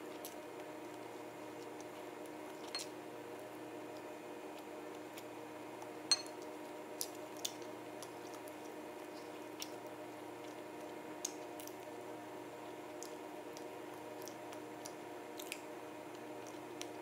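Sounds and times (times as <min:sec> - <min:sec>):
fork clinking on ceramic plate: 0:06.1 - 0:06.4
chewing and utensil clicks: 0:12.9 - 0:15.7.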